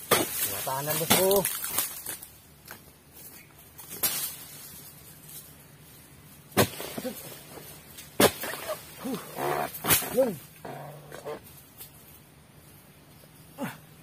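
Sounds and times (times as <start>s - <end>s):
animal calls rising and falling: 8.5s - 11.4s.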